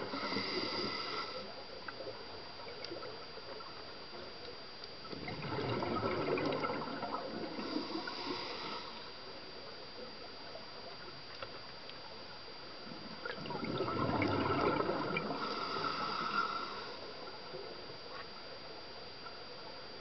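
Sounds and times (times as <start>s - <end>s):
bubbles gurgling underwater: 5.1s - 8.5s, 13.2s - 16.3s.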